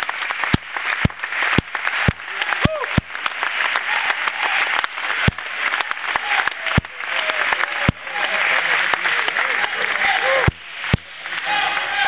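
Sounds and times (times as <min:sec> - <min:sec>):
crowd applauding and cheering: 0:00.0 - 0:12.0
people shouting: 0:02.3 - 0:03.0, 0:09.6 - 0:12.0.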